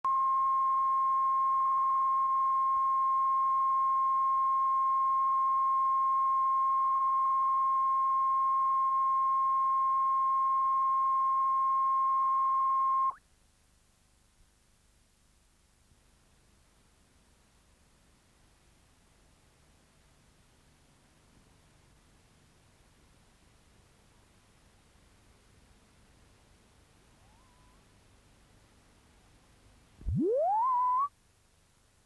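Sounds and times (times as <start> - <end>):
steady pure test tone: 30.0 - 31.1.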